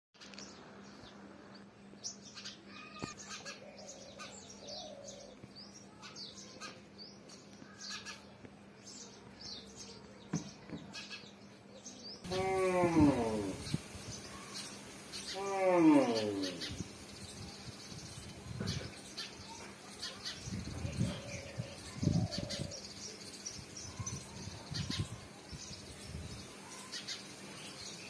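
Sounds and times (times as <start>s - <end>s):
sparrows chirping: 0.2s - 28.0s
loud pitched voice: 12.3s - 13.8s, 15.3s - 16.8s.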